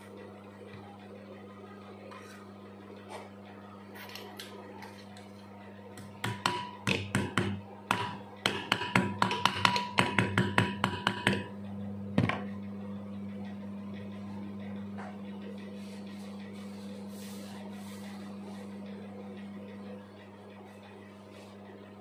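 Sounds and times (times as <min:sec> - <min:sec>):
electrical hum: 0:00.0 - 0:22.0.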